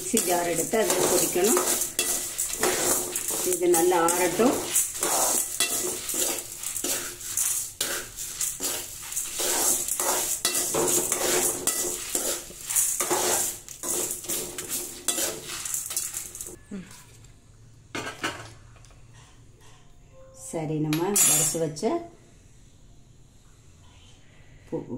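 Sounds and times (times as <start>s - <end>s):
spoon scraping in metal pan: 0.0s - 16.6s.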